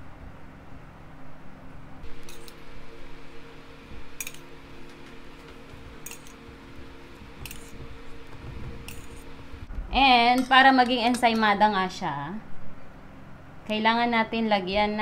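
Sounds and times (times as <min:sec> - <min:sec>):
utensil clinking on dish: 0:06.0 - 0:06.4, 0:08.8 - 0:09.4, 0:10.4 - 0:11.6.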